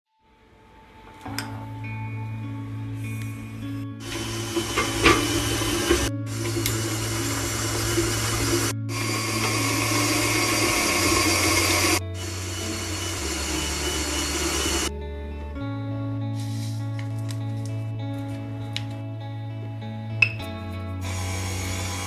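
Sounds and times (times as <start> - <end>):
background music: 0.2 - 22.0
stand mixer running: 4.0 - 14.9, 21.1 - 22.0.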